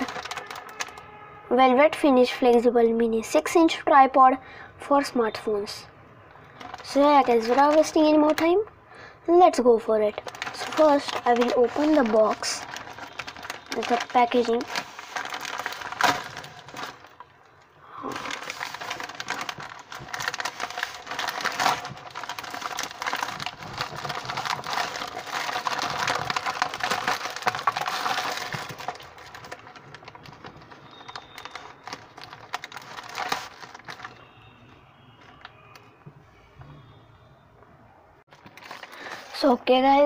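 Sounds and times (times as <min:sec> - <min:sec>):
plastic bag crinkling: 0:00.0 - 0:01.0, 0:06.4 - 0:08.8, 0:09.4 - 0:35.8, 0:38.3 - 0:40.0.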